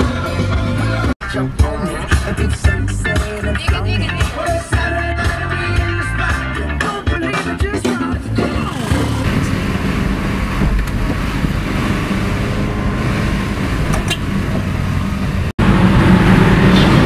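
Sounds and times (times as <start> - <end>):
car engine and tyre noise: 8.2 - 17.0.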